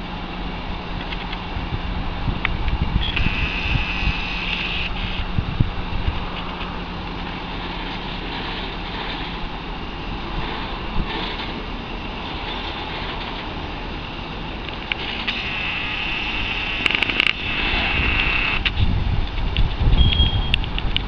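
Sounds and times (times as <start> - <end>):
heavy crane engine running: 0.0 - 21.0.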